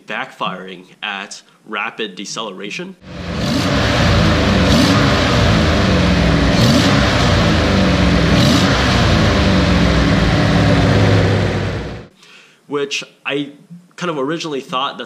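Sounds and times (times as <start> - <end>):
car engine revving: 3.0 - 12.1
engine backfiring: 3.0 - 12.1.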